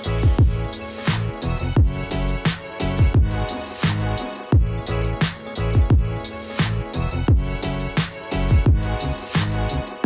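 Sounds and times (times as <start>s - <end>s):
deep kick drums: 0.2s - 0.7s, 1.6s - 2.0s, 3.0s - 3.4s, 4.6s - 4.8s, 5.8s - 6.2s, 7.3s - 7.5s, 8.5s - 8.9s.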